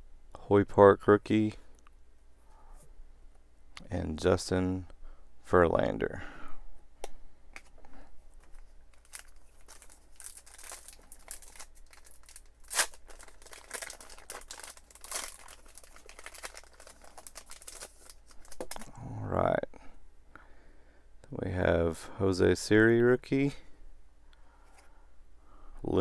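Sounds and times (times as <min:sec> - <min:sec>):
foil wrapper crinkling: 0:08.4 - 0:18.8
foil wrapper ripping: 0:08.9 - 0:18.8.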